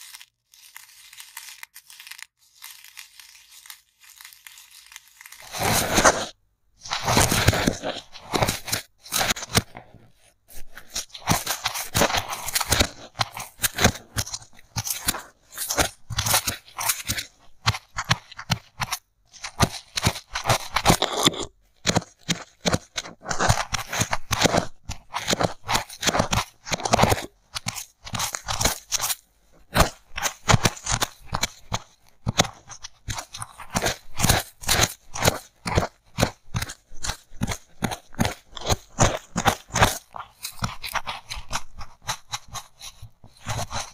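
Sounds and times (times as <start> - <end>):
polystyrene foam crunching: 0.0 - 9.8.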